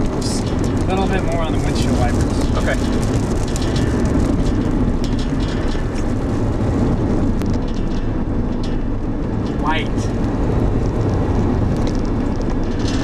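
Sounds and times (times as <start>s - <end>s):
raindrops ticking on windshield: 0.0s - 7.8s
car engine and road rumble: 0.0s - 13.0s.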